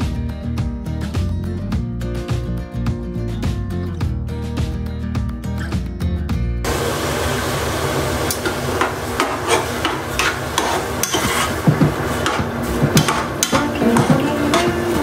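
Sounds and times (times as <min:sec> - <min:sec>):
spoon scraping saucepan: 0:09.2 - 0:11.7.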